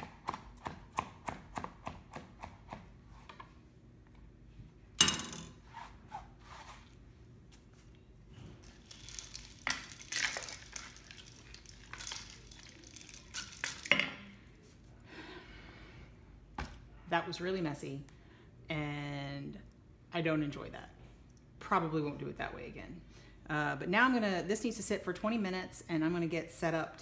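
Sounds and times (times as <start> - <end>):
shredded cabbage rustling in bowl: 7.7 - 13.9.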